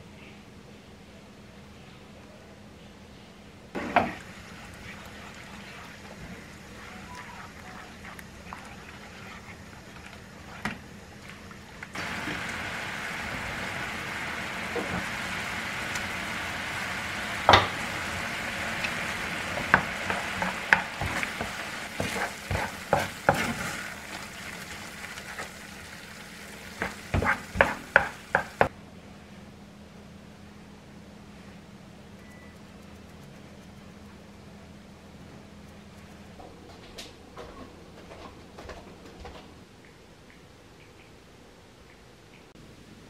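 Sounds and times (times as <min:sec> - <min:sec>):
risotto sizzling and bubbling: 0:03.7 - 0:28.7
spatula scraping and knocking pan: 0:18.8 - 0:23.9, 0:26.7 - 0:28.7.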